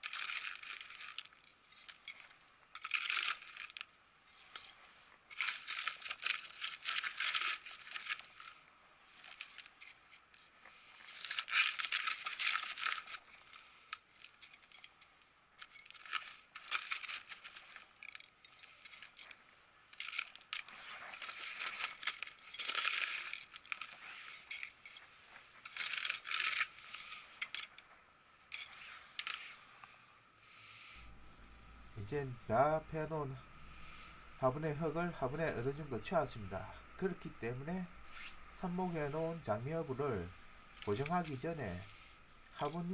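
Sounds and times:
trowel scraping gritty soil: 0:28.5 - 0:29.7, 0:32.0 - 0:42.9.

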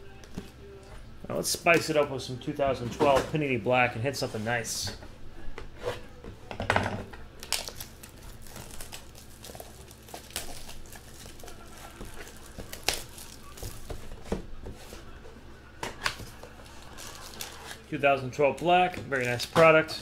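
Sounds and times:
plastic shrink wrap crinkling: 0:07.3 - 0:15.0, 0:16.0 - 0:18.0.

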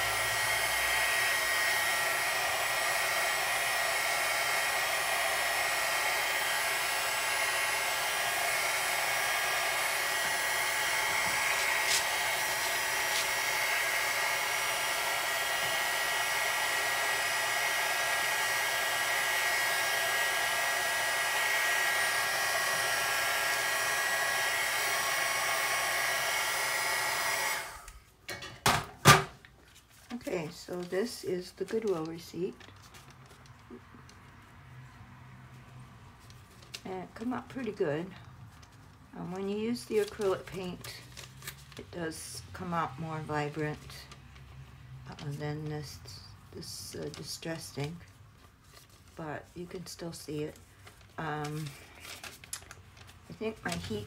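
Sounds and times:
heat gun blowing air: 0:00.0 - 0:28.0.

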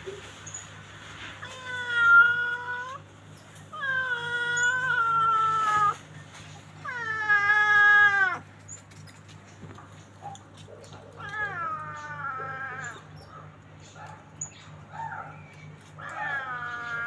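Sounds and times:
animal crying: 0:01.4 - 0:08.7, 0:11.0 - 0:13.6, 0:14.9 - 0:17.0.

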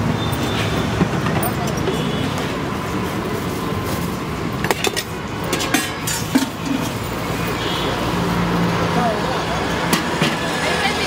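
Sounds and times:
road traffic noise: 0:00.0 - 0:11.0
steel utensils clinking: 0:04.6 - 0:07.6.

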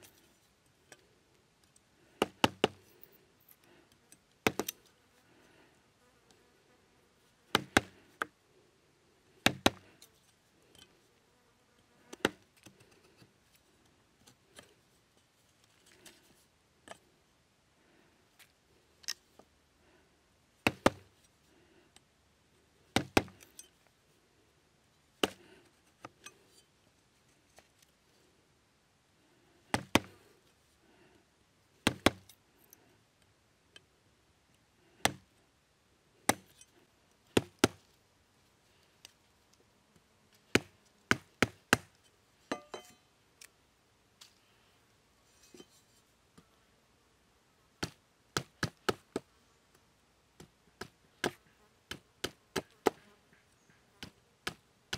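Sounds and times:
machete chopping bamboo: 0:02.2 - 0:02.8, 0:04.4 - 0:04.7, 0:07.5 - 0:08.3, 0:09.4 - 0:09.8, 0:20.6 - 0:21.1, 0:23.0 - 0:23.4, 0:25.2 - 0:25.4, 0:29.7 - 0:30.2, 0:31.8 - 0:32.3, 0:35.0 - 0:35.3, 0:36.3 - 0:36.5, 0:37.4 - 0:37.8, 0:40.5 - 0:42.0, 0:47.8 - 0:49.3, 0:54.0 - 0:54.6.

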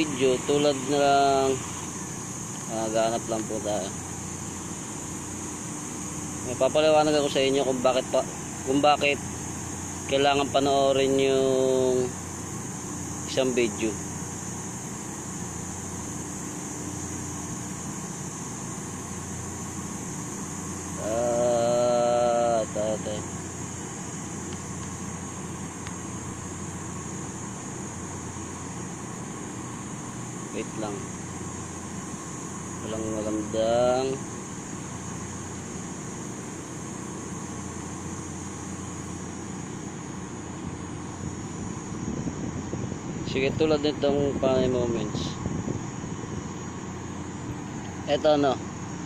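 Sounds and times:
background drone and hiss: 0:00.0 - 0:49.0.

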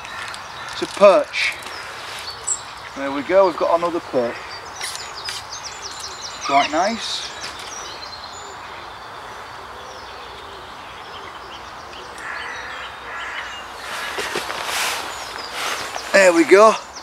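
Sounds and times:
faint bird chirps: 0:00.0 - 0:17.0
steady background hiss: 0:00.0 - 0:17.0
rustling: 0:13.8 - 0:16.7.

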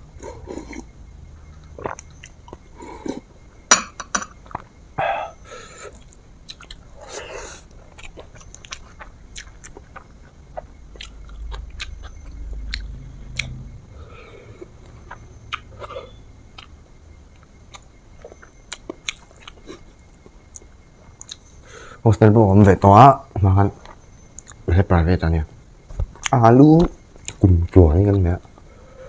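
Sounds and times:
person chewing food: 0:00.1 - 0:00.9, 0:01.6 - 0:03.3, 0:04.4 - 0:21.5, 0:23.8 - 0:24.7.

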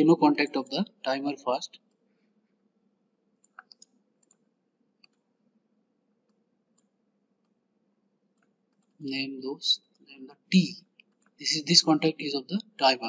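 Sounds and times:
computer mouse clicks: 0:03.4 - 0:04.4, 0:05.0 - 0:05.2.

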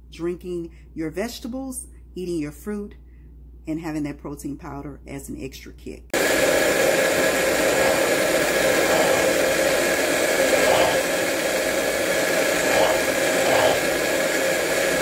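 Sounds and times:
blender motor running: 0:06.2 - 0:15.0.

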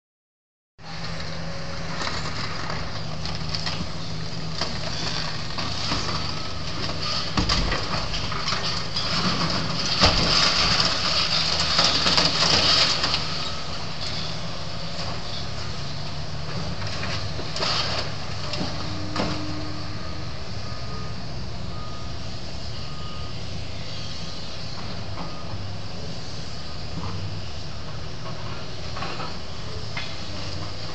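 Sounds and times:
excavator diesel engine running: 0:00.8 - 0:30.9
concrete and metal crunching: 0:01.9 - 0:14.4.

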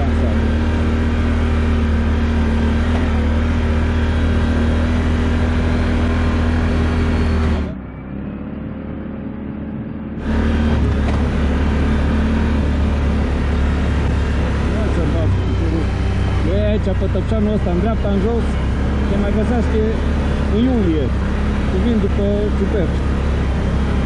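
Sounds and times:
atv engine running: 0:00.0 - 0:24.0.

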